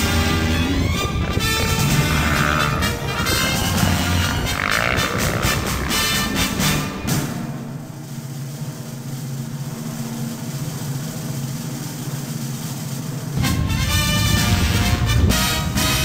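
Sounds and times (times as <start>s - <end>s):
motorbike engine running: 0.0s - 7.3s
swing background music: 0.0s - 7.6s, 13.4s - 16.0s.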